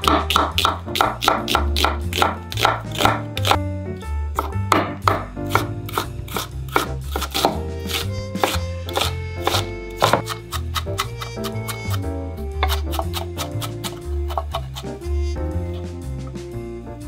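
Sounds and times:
knife tapping on cutting board: 0.0s - 3.6s, 4.4s - 6.0s, 6.7s - 12.0s
background music with bass: 0.0s - 17.0s.

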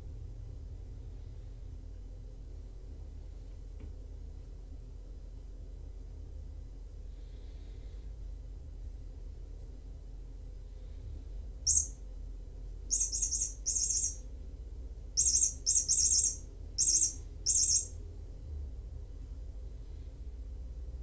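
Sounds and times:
high-pitched bird-like chirps: 11.7s - 12.0s, 12.9s - 14.2s, 15.2s - 18.0s.

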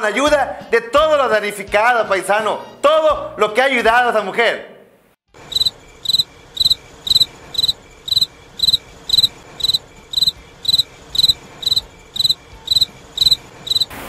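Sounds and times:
cricket chirping: 5.4s - 13.9s.

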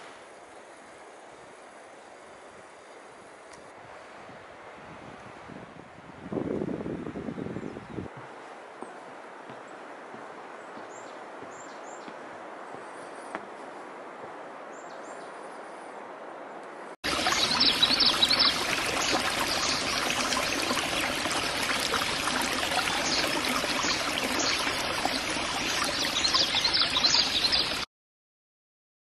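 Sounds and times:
faint steady hiss: 0.0s - 6.4s
water splashing into a pond: 17.0s - 27.9s.

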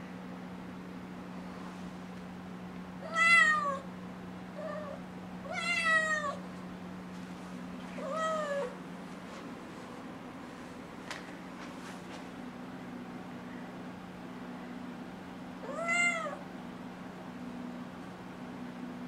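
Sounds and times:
kitten meowing: 3.0s - 3.8s, 4.6s - 6.4s, 8.0s - 8.8s, 15.6s - 16.4s.

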